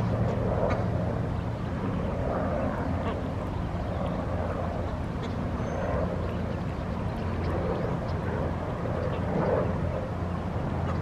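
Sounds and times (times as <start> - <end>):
steady low rumble: 0.0 - 11.0
faint waterfowl calls: 0.3 - 1.0, 2.6 - 4.2, 10.8 - 11.0.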